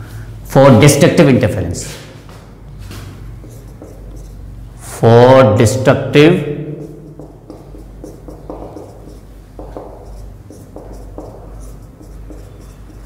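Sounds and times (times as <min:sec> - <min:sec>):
marker pen writing on whiteboard: 0:02.9 - 0:04.6, 0:06.4 - 0:13.0.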